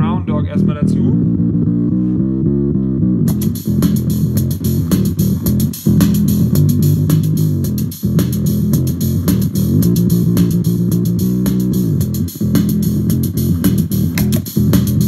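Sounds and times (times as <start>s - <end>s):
fuzz bass line: 0.0s - 15.0s
drum loop: 3.3s - 15.0s.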